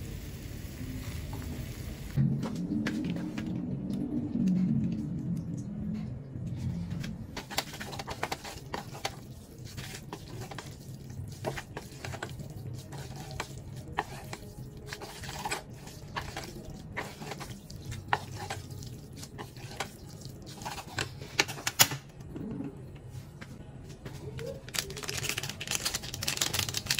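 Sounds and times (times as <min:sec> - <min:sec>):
low steady hum: 0:00.0 - 0:24.8
chopsticks scraping a saucepan: 0:07.4 - 0:21.4.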